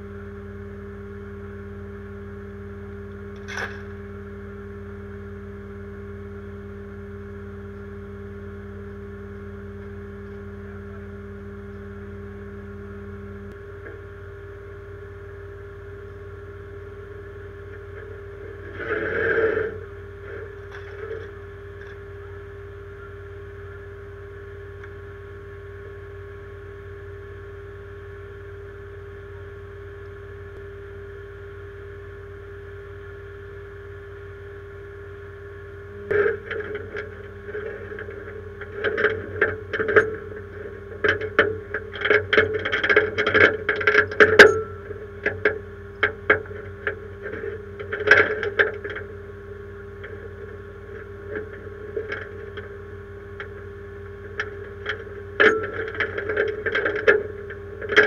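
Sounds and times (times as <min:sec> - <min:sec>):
noisy scrape: 0:17.6 - 0:21.6, 0:36.0 - 0:58.0.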